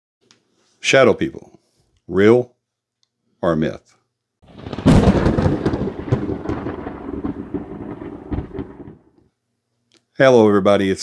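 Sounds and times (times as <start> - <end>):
thunderclap rumbling: 4.4 - 9.1.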